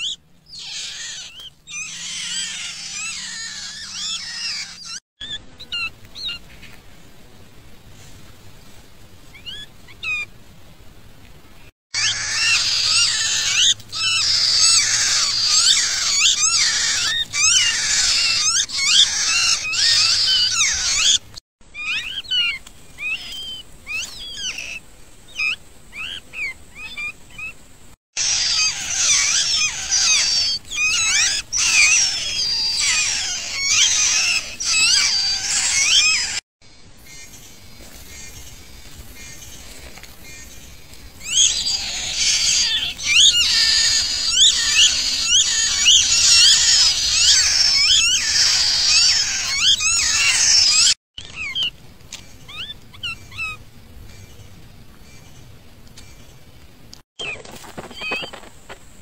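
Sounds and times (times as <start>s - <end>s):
bird nestlings chirping: 0.0s - 5.0s, 12.0s - 21.2s, 28.2s - 36.4s, 41.2s - 51.7s, 57.2s - 58.5s.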